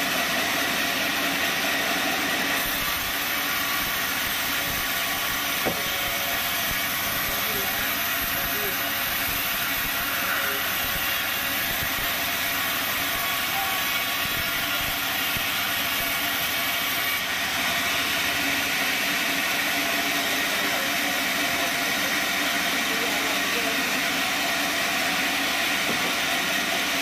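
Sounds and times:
band sawmill whirring: 0.0 - 27.0.

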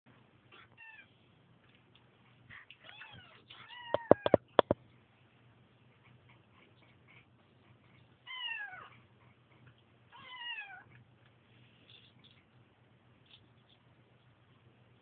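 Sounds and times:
kittens meowing: 2.9 - 4.7
sharp clicks: 4.0 - 4.8.

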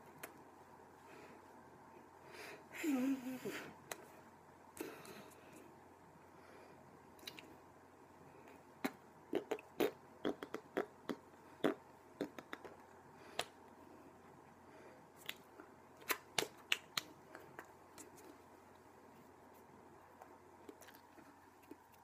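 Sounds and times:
faint room hum: 0.0 - 22.0
hands clicking and smacking: 12.2 - 13.6, 15.2 - 18.4.

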